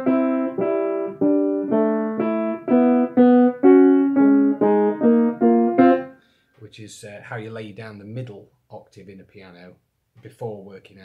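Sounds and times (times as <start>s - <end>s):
piano notes struck in pairs: 0.0s - 6.1s.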